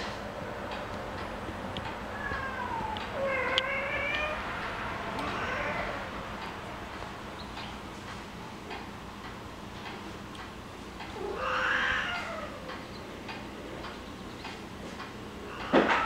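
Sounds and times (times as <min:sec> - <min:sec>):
cat meowing: 0:02.1 - 0:04.4, 0:05.2 - 0:06.1, 0:11.2 - 0:12.7.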